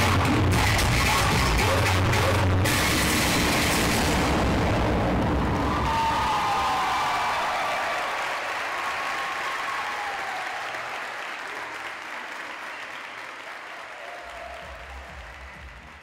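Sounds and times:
audience applauding: 5.3 - 16.0
high cheering shouts: 5.4 - 16.0.

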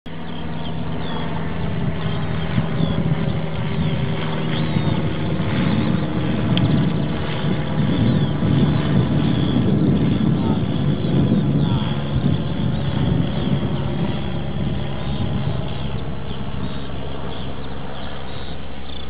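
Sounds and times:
model airplane motor droning: 0.1 - 19.0
wind noise: 0.1 - 19.0.

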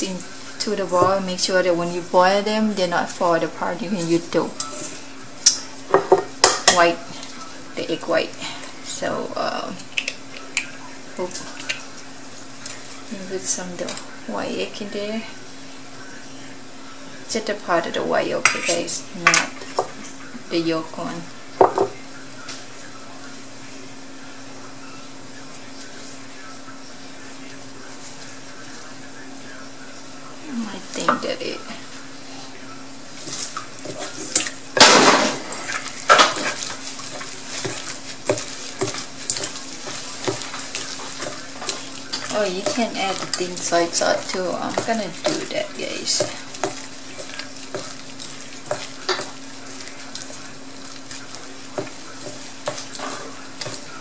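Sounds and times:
steady machine hum: 0.0 - 54.0
hand squishing wet meat mixture: 9.8 - 13.8, 32.1 - 54.0.

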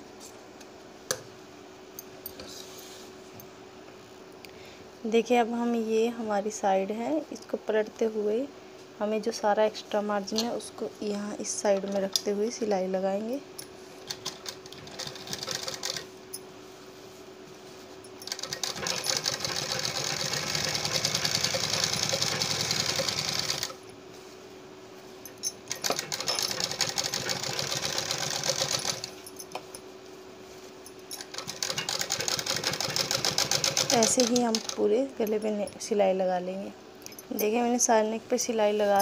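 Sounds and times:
faint steady hum: 0.0 - 39.0
sewing machine needle clatter: 14.1 - 16.0, 18.2 - 23.8, 25.7 - 29.1, 31.2 - 34.8.

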